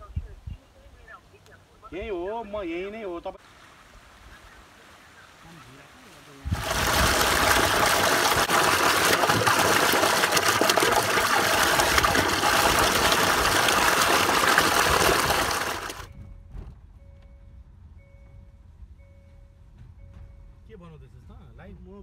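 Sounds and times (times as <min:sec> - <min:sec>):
water gushing into a pond: 0:06.5 - 0:16.1.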